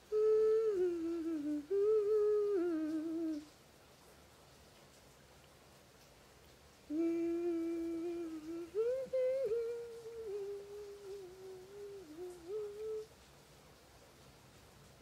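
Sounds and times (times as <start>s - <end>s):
woman humming: 0.0s - 3.5s, 6.9s - 13.1s.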